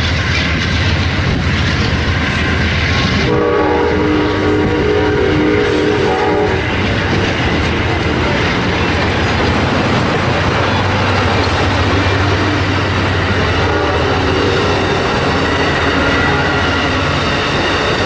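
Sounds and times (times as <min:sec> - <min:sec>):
train wheels rattling on rails: 0:00.0 - 0:18.0
train horn chord: 0:03.2 - 0:06.7, 0:13.3 - 0:17.2.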